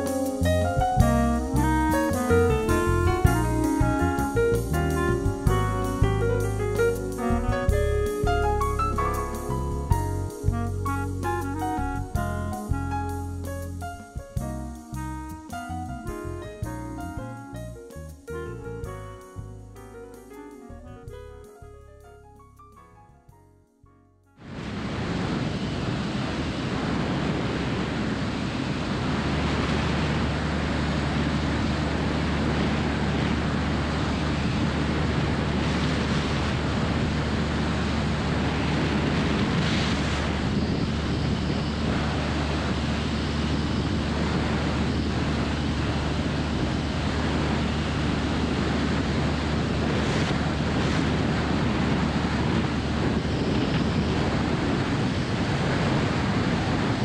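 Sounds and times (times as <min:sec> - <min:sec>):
aircraft engine and propeller drone: 0:24.4 - 0:57.0
wind noise on camera: 0:24.4 - 0:57.0.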